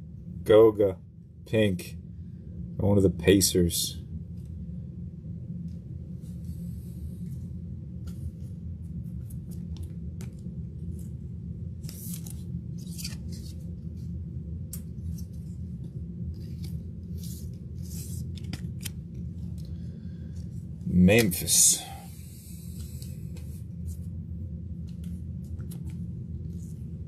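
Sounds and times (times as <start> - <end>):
steady low hum: 0.0 - 27.0
cards and packaging clicking: 16.5 - 19.7.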